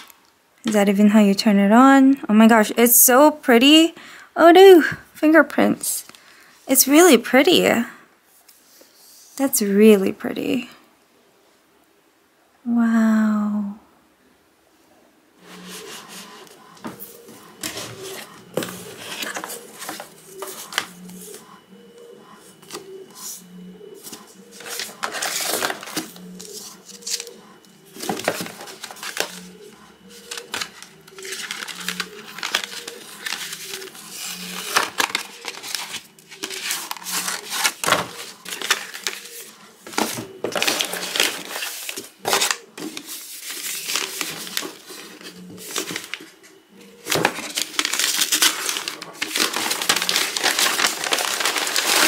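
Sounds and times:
paper and cardboard rustling: 15.4s - 21.5s, 22.5s - 52.0s.

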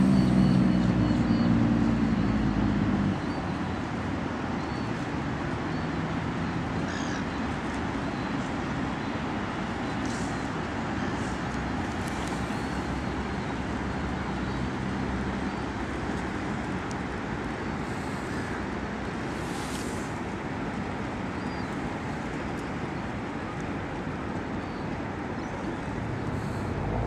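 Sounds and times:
low engine rumble: 25.5s - 27.0s.

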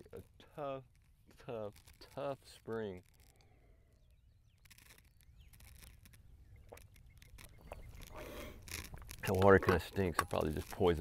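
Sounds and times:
man drinking from water bottle: 6.5s - 9.2s.

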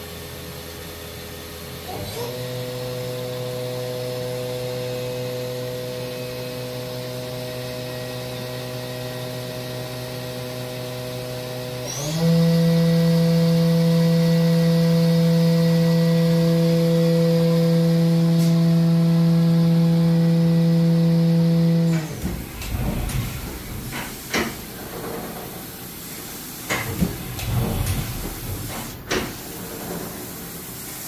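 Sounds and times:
mill spindle humming: 13.7s - 25.6s.

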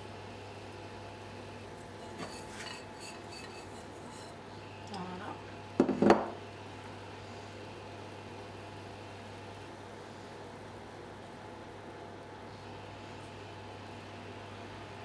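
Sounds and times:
glass bowl clinking: 2.0s - 4.3s
bowl knocking on countertop: 5.8s - 6.4s.

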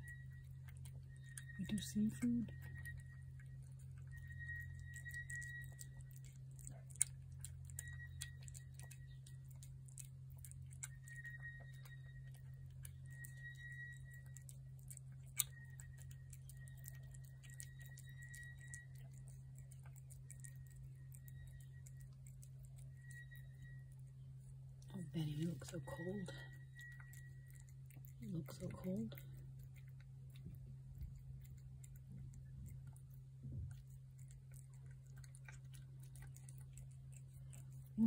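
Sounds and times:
cat chewing and licking: 0.0s - 38.0s
steady low hum: 0.0s - 38.0s
faint high tone: 24.9s - 29.4s.

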